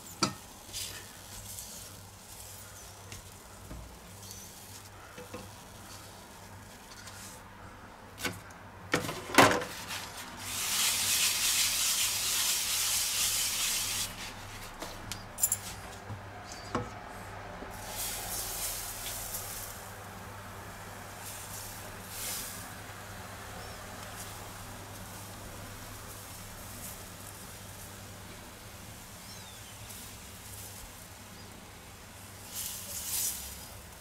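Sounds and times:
loud hiss: 10.4s - 14.2s.

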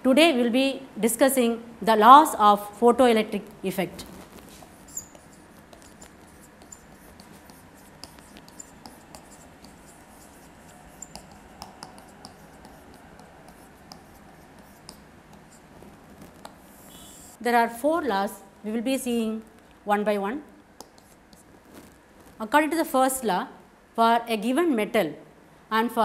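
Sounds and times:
low room hiss: 0.0s - 26.0s
marker squeaking on whiteboard: 4.0s - 17.4s, 20.8s - 22.0s.

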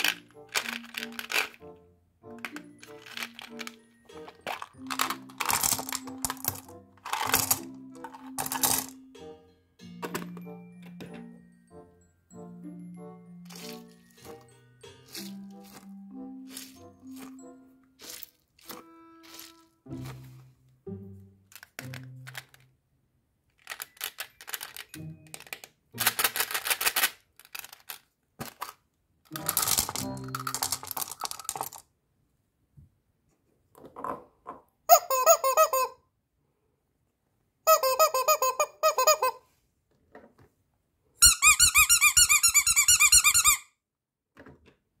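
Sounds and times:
candies clattering into a mould: 0.0s - 1.6s, 2.4s - 9.0s, 13.5s - 15.9s, 16.5s - 20.5s, 21.5s - 22.7s, 23.5s - 31.8s.

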